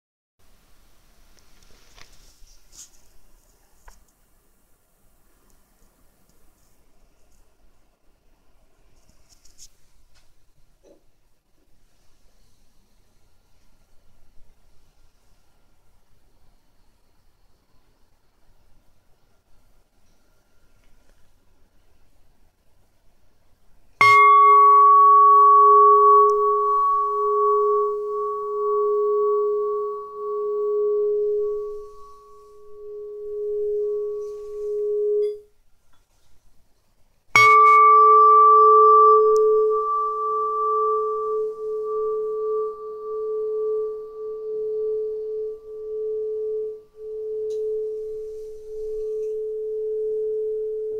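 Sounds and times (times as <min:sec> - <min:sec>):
tuning tube ringing: 0:24.0 - 0:35.6, 0:37.4 - 0:50.9.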